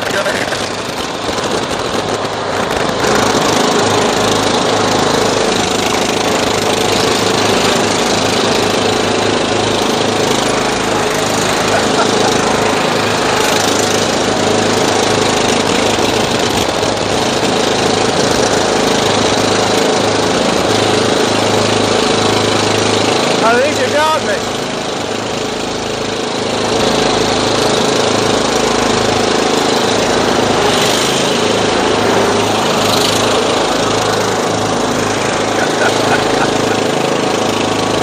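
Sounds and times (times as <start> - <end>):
riding lawn mower engines running: 0.0 - 38.0.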